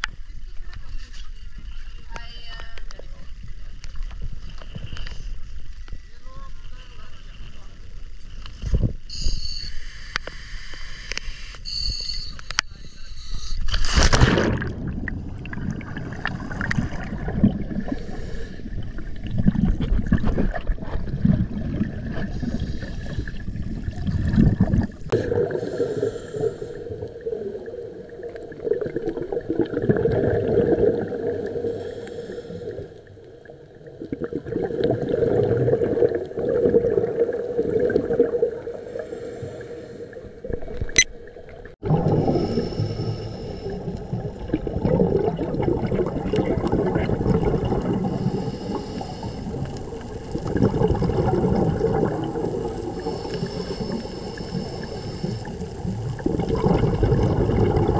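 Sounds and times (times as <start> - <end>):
water noise: 0.0 - 57.9
underwater breathing bubbles gurgling: 13.3 - 57.9
water splash: 13.7 - 18.3, 18.9 - 32.9, 33.8 - 39.3.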